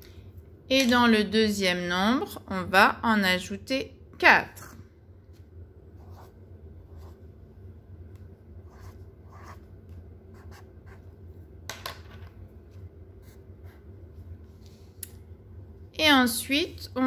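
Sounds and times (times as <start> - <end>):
felt-tip pen scratching on paper: 8.7 - 9.7.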